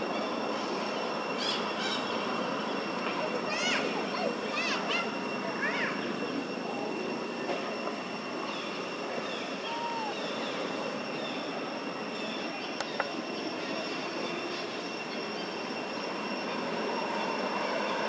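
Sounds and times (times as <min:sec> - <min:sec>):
faint high steady tone: 0:00.0 - 0:18.0.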